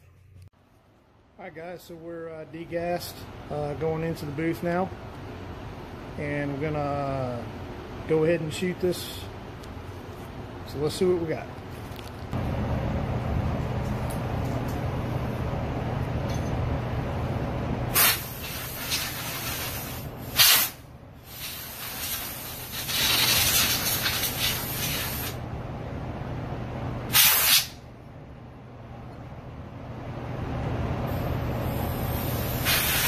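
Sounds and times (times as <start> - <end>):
steady low hum: 0.0 - 33.0
air gun hissing: 17.9 - 25.4, 27.1 - 27.8, 31.1 - 33.0.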